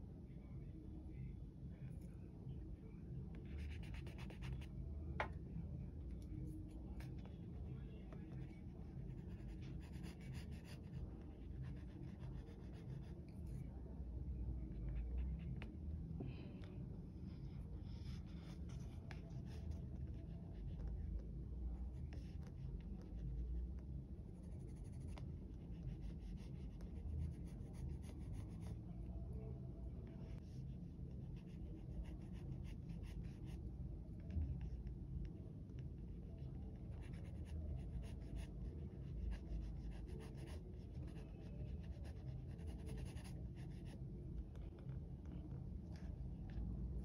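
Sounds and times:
pencil scratching on paper: 0:03.5 - 0:04.7, 0:08.9 - 0:13.2, 0:36.4 - 0:44.0.

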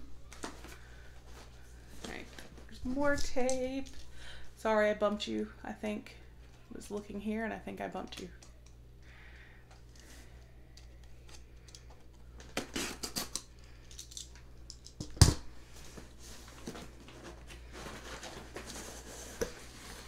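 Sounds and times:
cardboard box rustling: 0:15.9 - 0:20.0.

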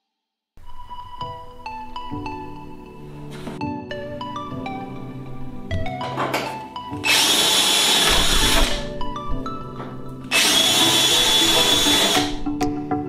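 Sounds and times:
cordless drill whining through metal: 0:07.0 - 0:08.9, 0:10.2 - 0:12.5.

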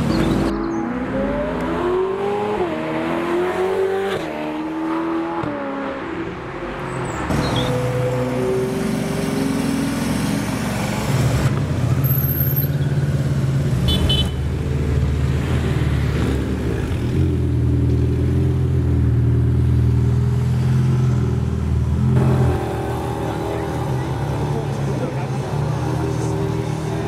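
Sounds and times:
car engine droning: 0:16.6 - 0:27.0.

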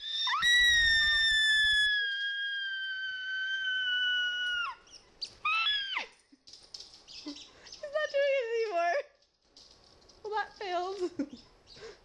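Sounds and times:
woman's high-pitched squeal: 0:00.0 - 0:04.8, 0:05.4 - 0:06.2.

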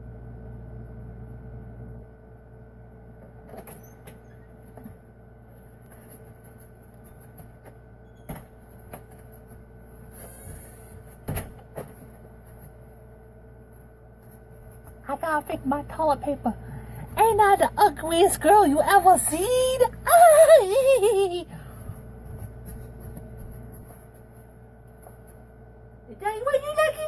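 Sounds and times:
steady hum: 0:00.0 - 0:27.0
knocks and thumps of movement: 0:05.8 - 0:13.0.

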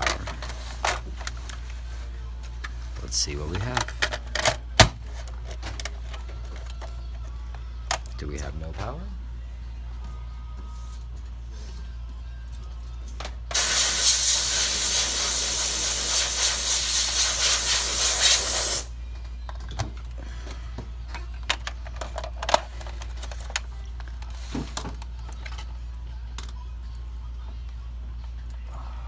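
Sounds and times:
loud steady hiss: 0:13.5 - 0:19.0.

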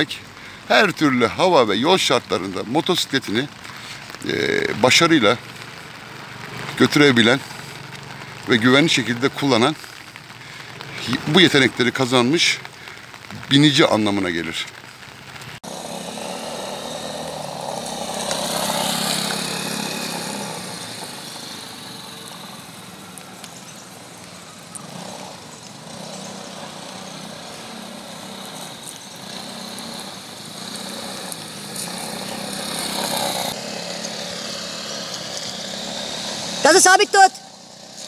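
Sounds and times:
tyre hiss on wet pavement: 0:00.0 - 0:36.7, 0:37.5 - 0:38.0
motor scooter engine running: 0:15.6 - 0:38.0.

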